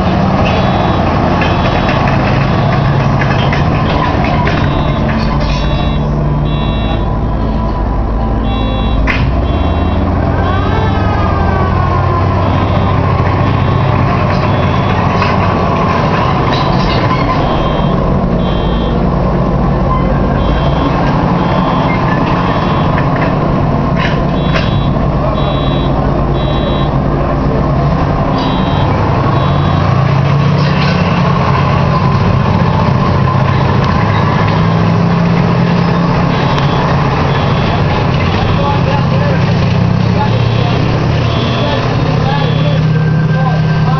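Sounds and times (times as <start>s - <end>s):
radial engine running under load: 0.0s - 43.9s
high beeping: 0.4s - 3.2s, 3.9s - 11.2s, 12.2s - 19.1s, 19.9s - 23.2s, 24.2s - 27.1s, 28.3s - 30.3s, 35.0s - 39.4s, 40.2s - 43.9s.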